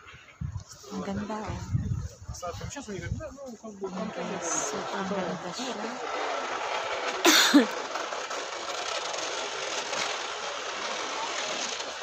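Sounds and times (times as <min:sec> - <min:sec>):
city street noise: 0:03.1 - 0:12.0.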